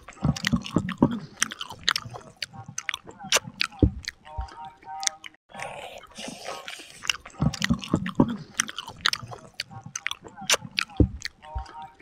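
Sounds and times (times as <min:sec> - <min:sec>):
chewing and mouth smacking: 0:00.0 - 0:12.0.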